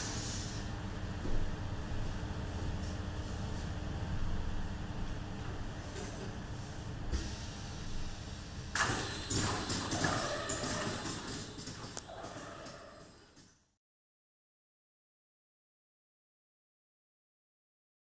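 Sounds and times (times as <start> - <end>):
machine humming: 0.0 - 13.6
mechanical clicks and clatter: 8.8 - 13.5.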